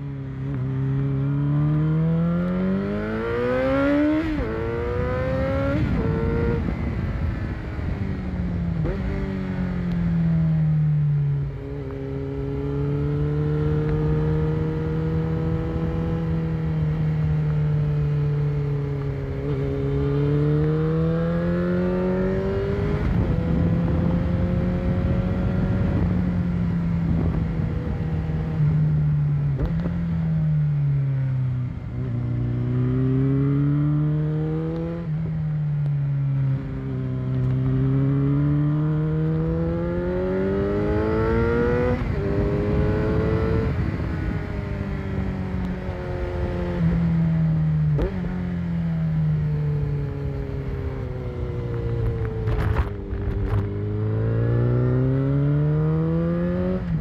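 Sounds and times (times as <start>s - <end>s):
motorcycle engine accelerating: 0.0s - 57.0s
wind noise: 3.1s - 10.3s, 18.7s - 30.2s, 36.4s - 48.4s, 49.9s - 57.0s.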